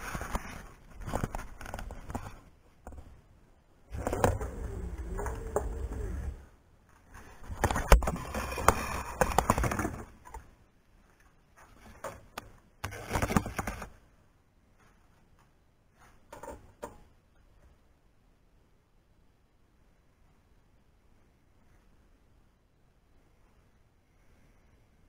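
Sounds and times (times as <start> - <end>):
parts clattering and rustling: 0.0 - 3.2, 3.9 - 14.1, 14.7 - 17.2.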